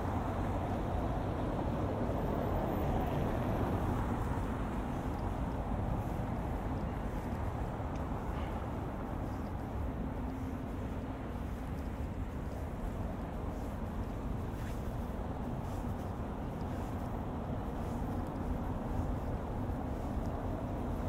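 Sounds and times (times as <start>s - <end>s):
low rumble of vehicle noise: 0.0s - 21.0s.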